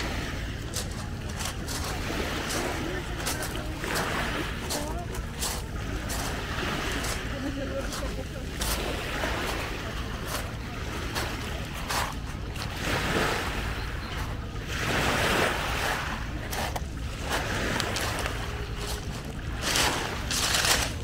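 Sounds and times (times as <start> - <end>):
low wind rumble on microphone: 0.0 - 21.0
waves washing over pebbles: 0.0 - 21.0.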